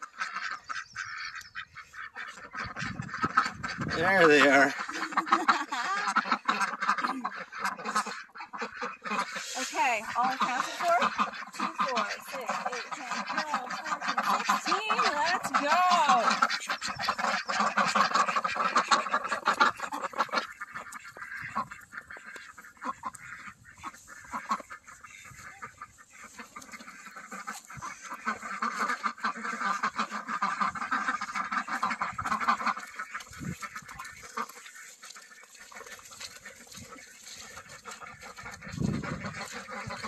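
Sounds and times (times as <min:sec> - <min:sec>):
ducks quacking: 0:00.0 - 0:40.0.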